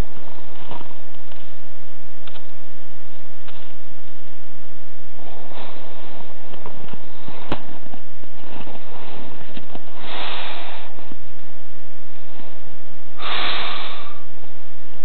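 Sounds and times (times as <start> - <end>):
sharp click: 2.2 - 2.5
person sniffing: 10.0 - 11.0, 13.2 - 14.3.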